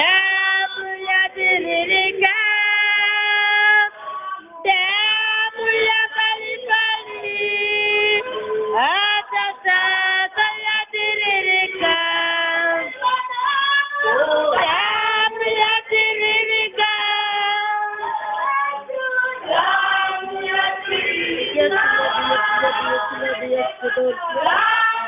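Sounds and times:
women singing worship song: 0.0s - 25.0s.

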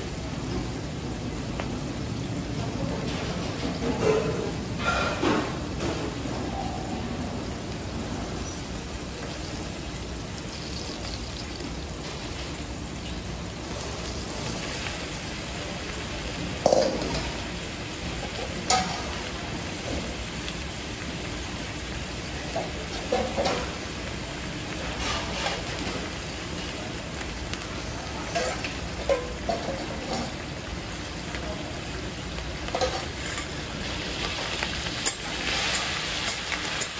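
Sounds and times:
vegetables sizzling on griddle: 0.0s - 36.9s
metal utensil clanks: 3.6s - 6.0s, 16.6s - 17.3s, 18.6s - 19.2s, 28.2s - 30.4s, 32.7s - 33.6s, 34.9s - 36.9s.

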